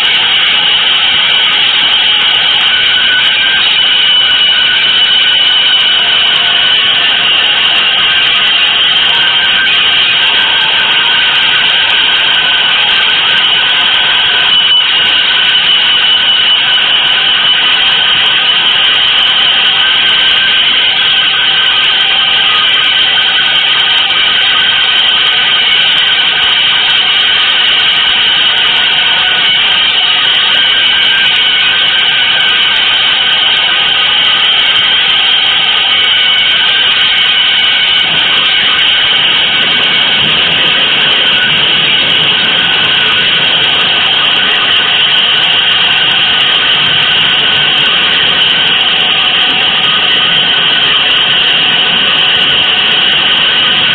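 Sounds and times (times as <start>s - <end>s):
hissing electronic noise: 0.0s - 53.9s.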